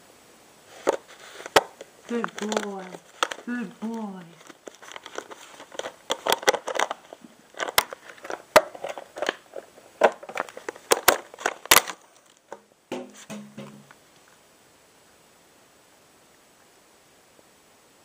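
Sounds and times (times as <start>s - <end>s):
plastic bottle crushed and crinkled: 0.8s - 3.6s, 4.4s - 13.9s.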